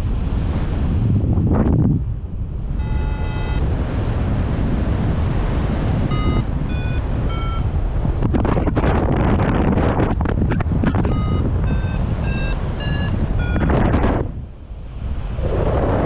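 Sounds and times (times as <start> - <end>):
wind rushing over microphone: 0.0 - 16.0
variometer beeping: 2.7 - 3.6, 6.0 - 7.8, 10.6 - 14.1.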